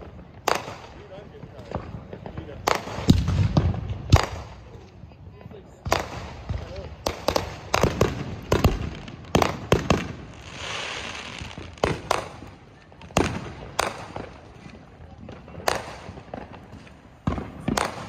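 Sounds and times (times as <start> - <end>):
fireworks bangs and pops: 0.0 - 18.0
firework hissing: 7.2 - 12.6.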